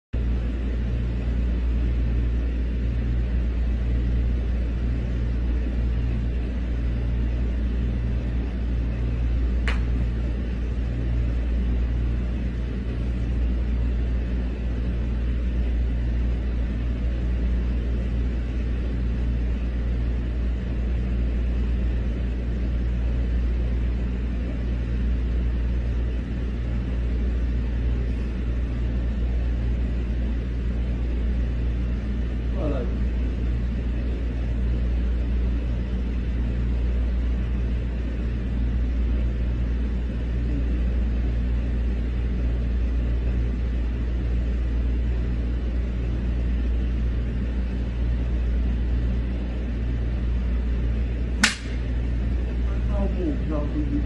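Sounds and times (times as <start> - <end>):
sharp click: 9.6 - 9.9, 51.4 - 51.9.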